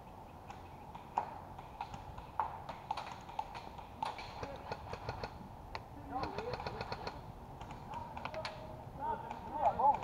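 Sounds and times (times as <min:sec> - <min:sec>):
airsoft gunfire: 0:01.8 - 0:05.4, 0:06.2 - 0:08.5.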